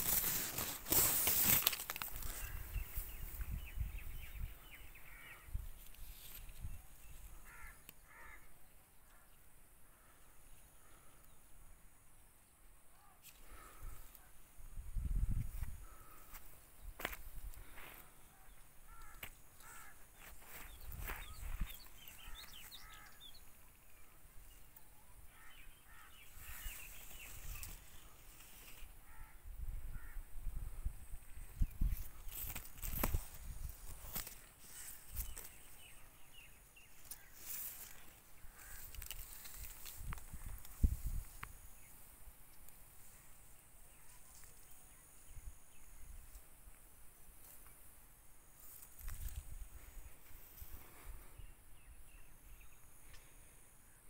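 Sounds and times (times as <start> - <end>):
birds calling: 0.0 - 14.6, 15.5 - 46.4
crows cawing: 5.0 - 5.6, 7.3 - 11.3, 15.8 - 16.4, 17.6 - 20.6, 22.2 - 23.2, 25.3 - 26.9, 29.0 - 30.3, 37.0 - 39.2.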